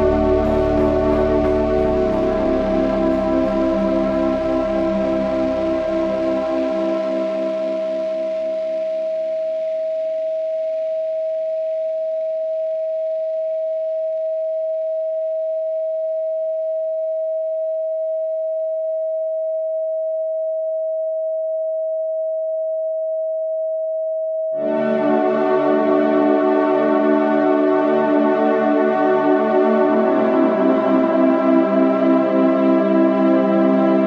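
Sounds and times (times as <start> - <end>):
faint ambient music: 0.0 - 10.9, 24.6 - 34.0
electronic sine tone: 0.0 - 33.8.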